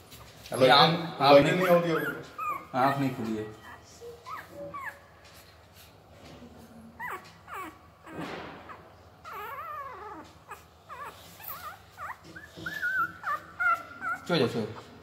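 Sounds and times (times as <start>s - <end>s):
puppy whimpering: 1.5s - 5.6s, 6.9s - 15.0s.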